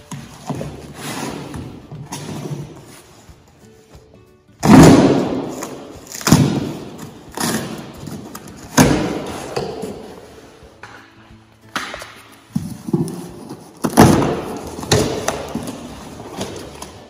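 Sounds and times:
tape and cardboard ripping: 4.6 - 10.2, 11.7 - 17.0.

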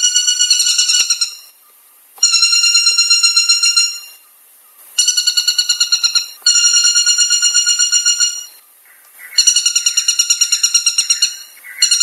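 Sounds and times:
woodpecker rattling call: 2.2 - 4.2, 5.0 - 12.0.

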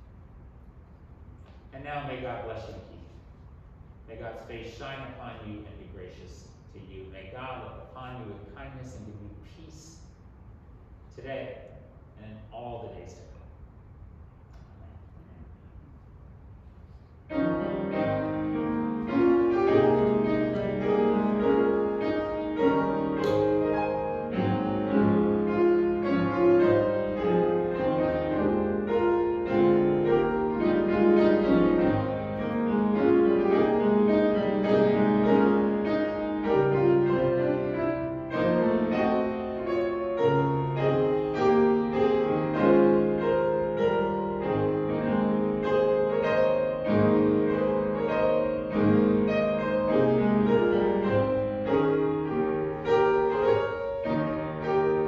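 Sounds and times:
slow instrumental chords: 17.4 - 55.0.

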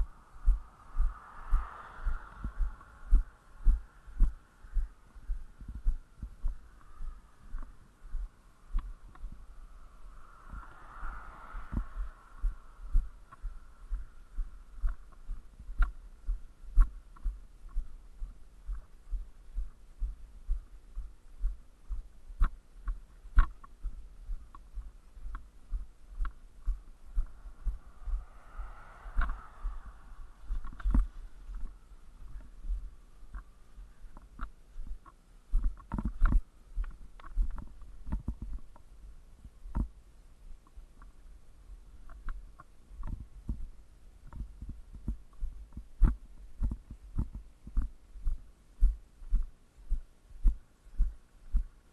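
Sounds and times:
camera jostling rumble: 21.9 - 38.9.

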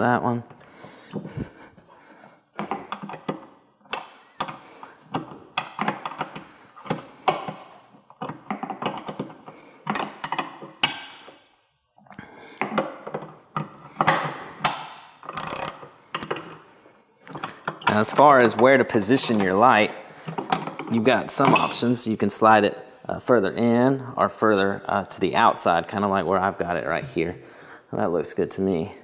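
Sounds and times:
wrench clicking and scraping on bolt: 2.6 - 11.5, 12.6 - 16.6.

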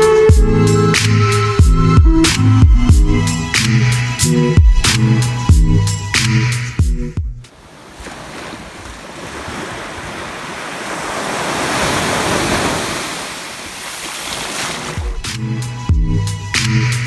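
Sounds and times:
small waves washing on beach: 7.5 - 15.2.

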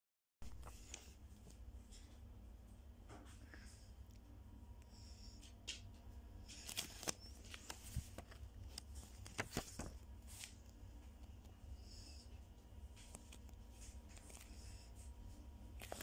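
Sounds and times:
paper pages rustling: 0.4 - 2.0, 6.4 - 11.6, 12.8 - 16.0
steady low hum: 0.4 - 16.0.

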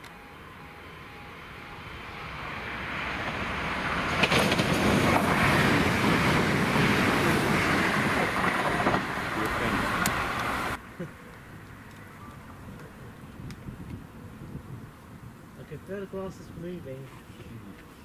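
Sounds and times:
train passing on track: 0.0 - 16.8
sharp clack of train wheels: 3.2 - 10.8.

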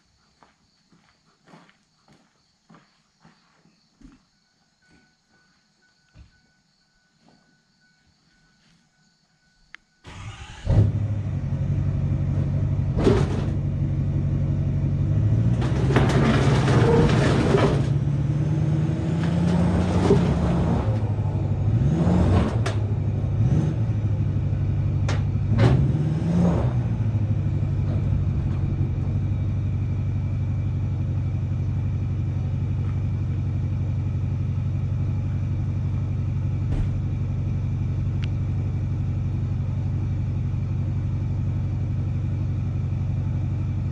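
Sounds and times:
engine revving and idling: 10.1 - 43.9
clunks: 12.2 - 14.0, 15.2 - 34.2, 34.8 - 38.5.

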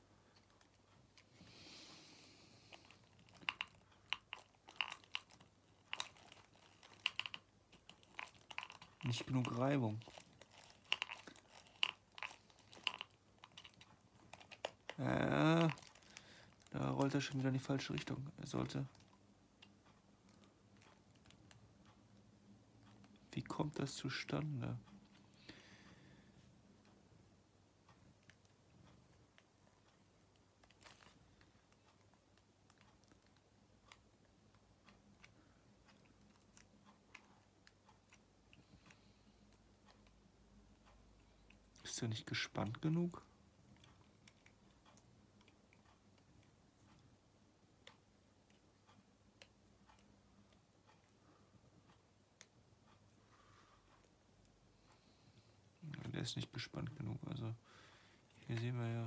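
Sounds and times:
small plastic clicks: 2.7 - 18.1.

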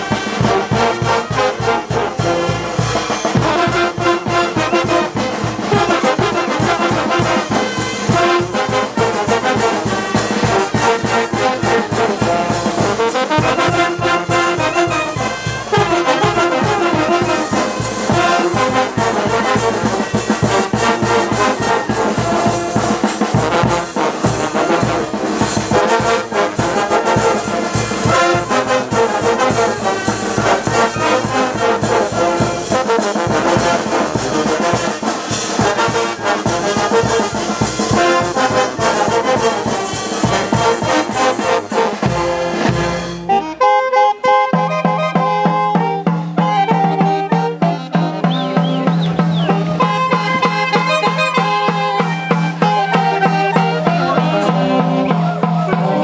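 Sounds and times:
brass band playing: 0.0 - 56.0
bass drum beat: 47.6 - 51.0.

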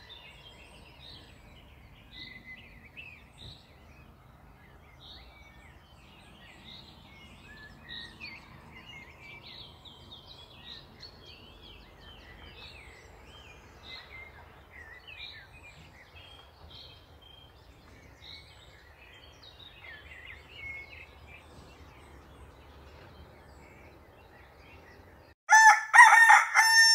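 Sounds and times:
songbirds chirping and warbling: 0.0 - 26.9
rooster crowing: 25.5 - 26.9.

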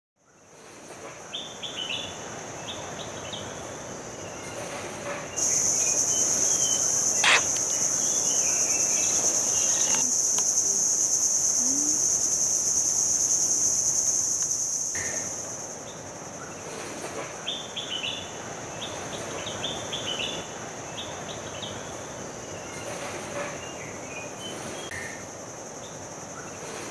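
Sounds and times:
fainter insect drone: 1.8 - 16.6
birds chirping: 5.3 - 10.6
shrill insect drone: 5.4 - 16.0
sharp click: 7.2 - 7.8.

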